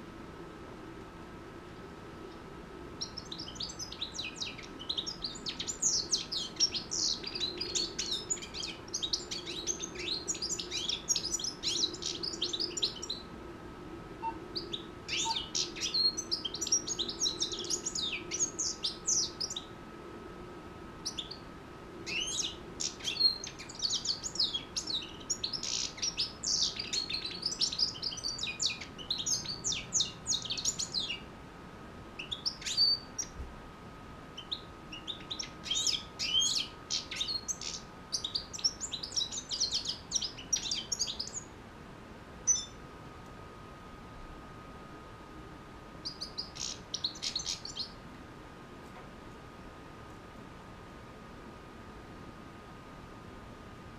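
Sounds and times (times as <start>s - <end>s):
goldfinch twittering song: 3.0s - 13.3s, 14.2s - 19.7s, 21.0s - 21.4s, 22.1s - 31.2s, 32.2s - 33.4s, 34.4s - 41.5s, 42.5s - 42.8s, 46.0s - 48.0s.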